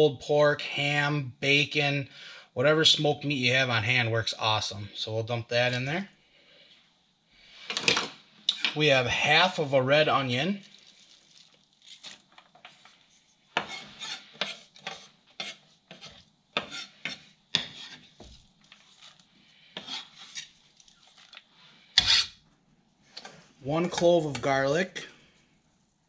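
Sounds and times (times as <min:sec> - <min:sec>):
knife scraping on cutting board: 0:11.9 - 0:19.2, 0:19.8 - 0:21.2, 0:22.0 - 0:22.4.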